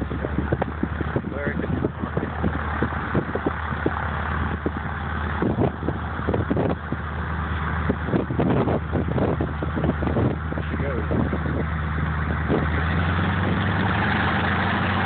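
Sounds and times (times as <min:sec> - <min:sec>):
low engine thumps: 0:00.0 - 0:15.0
radial aircraft engine running: 0:00.0 - 0:15.0.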